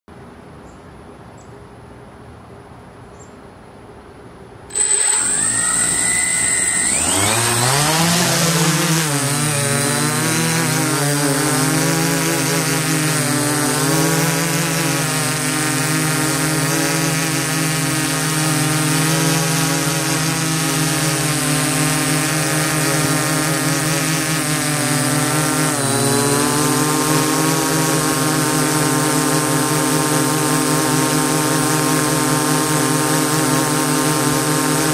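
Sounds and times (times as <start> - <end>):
faint high whine: 4.7 - 10.8
drone motors buzzing: 4.7 - 34.9.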